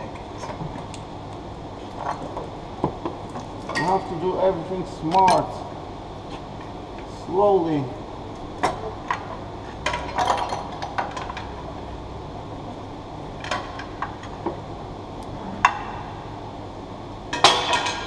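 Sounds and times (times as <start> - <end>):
metallic clinks and knocks of tools: 5.1 - 5.6.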